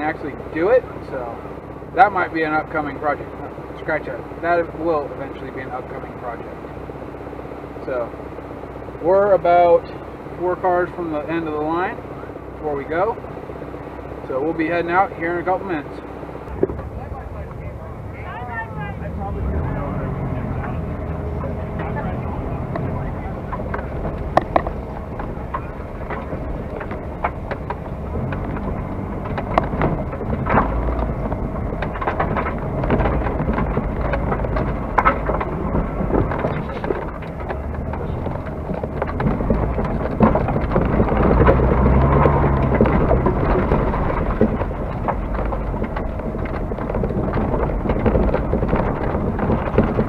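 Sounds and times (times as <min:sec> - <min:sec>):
race car engine and road rumble: 0:00.0 - 0:50.0
gravel pinging against car body: 0:19.6 - 0:50.0.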